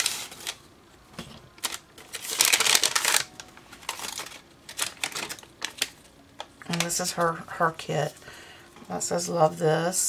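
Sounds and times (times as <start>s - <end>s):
paper rustling and sliding: 0.0s - 0.6s.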